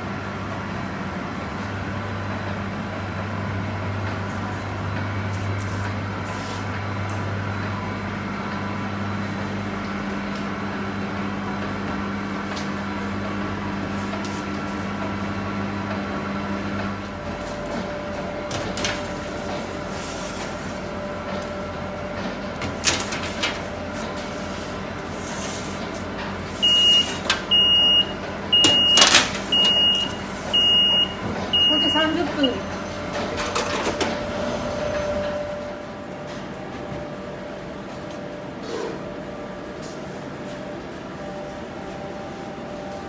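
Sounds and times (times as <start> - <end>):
bakery machinery humming: 0.0 - 43.0
oven control panel beeps: 26.6 - 35.8.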